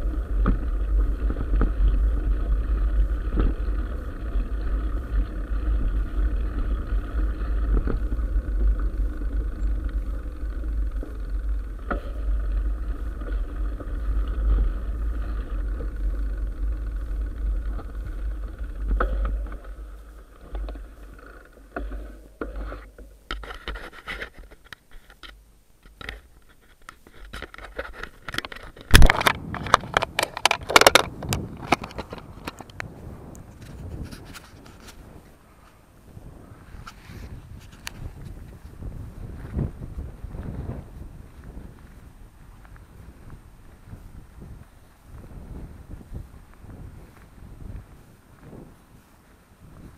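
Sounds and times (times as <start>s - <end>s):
wind on microphone: 0.0s - 23.8s, 27.3s - 49.9s
bike tyres rumbling on gravel: 0.0s - 49.9s
scrapes and knocks on microphone: 21.8s - 32.7s, 33.5s - 35.1s.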